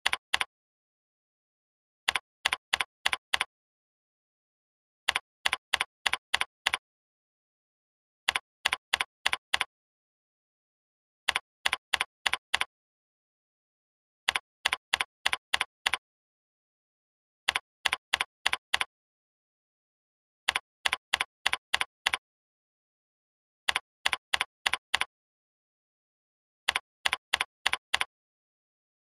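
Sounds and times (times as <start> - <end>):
computer keyboard key clicks: 0.0 - 0.5, 2.1 - 3.5, 5.1 - 6.8, 8.3 - 9.7, 11.3 - 12.7, 14.3 - 16.0, 17.5 - 18.9, 20.5 - 22.2, 23.7 - 25.1, 26.7 - 28.1.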